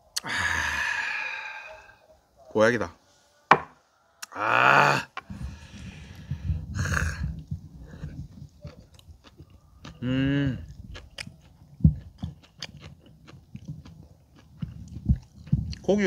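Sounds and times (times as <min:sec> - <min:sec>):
breathy exhale: 0:00.2 - 0:02.0
chewing with wet smacking: 0:07.3 - 0:16.0
person humming mmm: 0:09.8 - 0:10.7.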